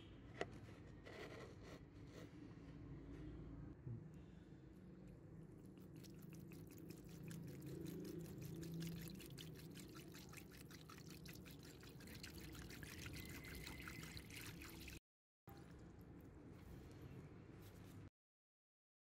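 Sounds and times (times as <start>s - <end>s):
liquid pouring into tub: 5.6s - 16.0s.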